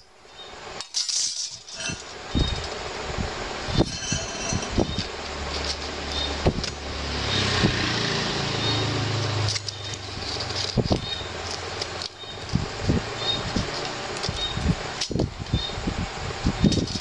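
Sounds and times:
metal ring knocking on concrete: 3.8s - 5.0s
vehicle engine passing by: 6.8s - 9.7s.

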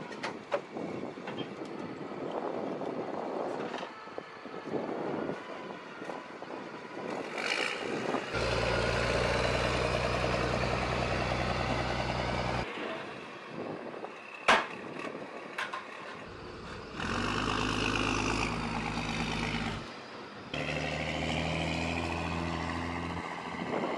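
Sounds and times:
tracked vehicle engine running: 6.0s - 13.0s, 14.4s - 23.9s.

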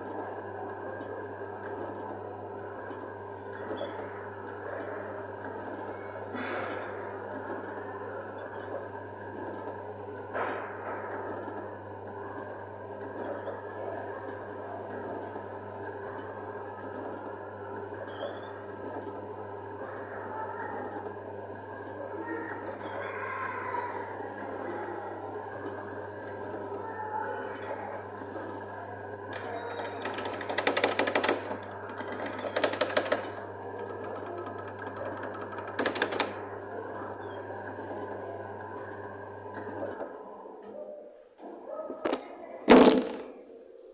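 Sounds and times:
kiddie ride humming: 0.0s - 43.9s.

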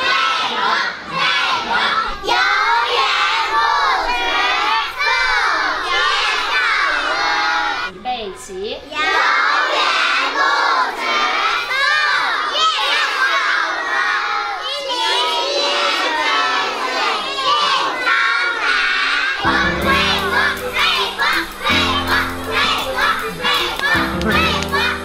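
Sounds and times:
children shouting and chanting: 0.0s - 8.0s, 8.8s - 25.0s
background music with bass: 19.5s - 25.0s.

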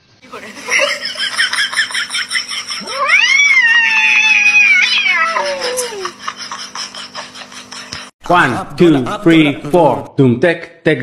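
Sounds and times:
cat yowling: 2.8s - 6.1s.

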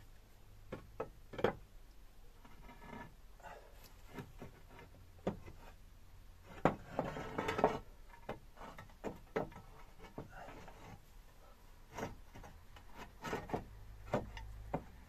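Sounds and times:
roof tiles knocking and clinking: 0.7s - 1.7s, 4.1s - 5.7s, 6.4s - 11.0s, 11.9s - 15.0s
tiles rattling and scraping: 6.4s - 11.1s, 11.8s - 14.9s.

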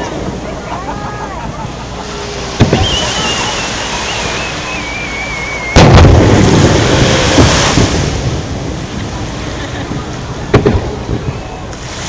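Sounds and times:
firework whistling: 2.1s - 8.3s
firework boom: 2.6s - 4.7s, 5.7s - 9.0s, 10.5s - 11.4s.

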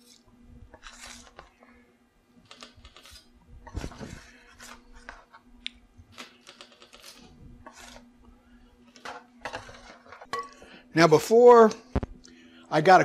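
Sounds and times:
metal spatula scraping baking sheet: 0.0s - 1.6s, 2.6s - 5.4s, 6.2s - 8.1s, 8.8s - 10.3s.

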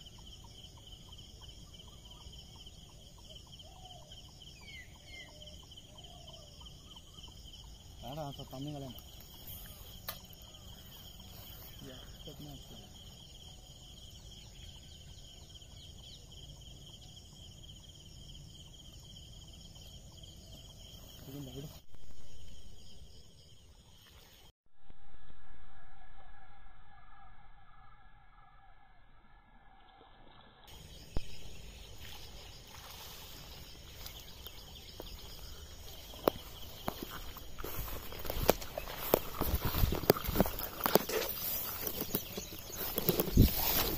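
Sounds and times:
insects chirring: 0.0s - 43.9s
outdoor background noise: 0.0s - 43.9s
faint low rumble: 24.7s - 33.1s
rustling through tall grass: 30.7s - 43.9s.

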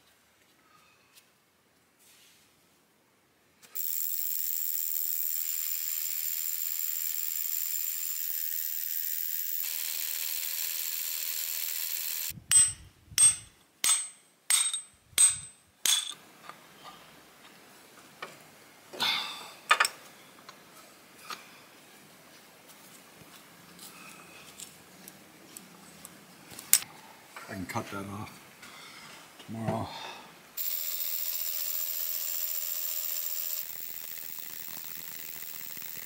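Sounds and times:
power drill boring into rock: 3.8s - 12.3s, 30.6s - 36.0s.

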